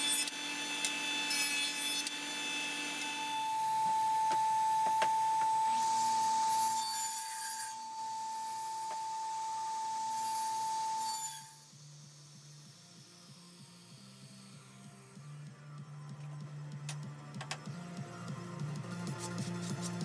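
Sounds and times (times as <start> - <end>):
saw blade cutting workpiece: 0.0 - 14.8
faint music: 11.5 - 20.0.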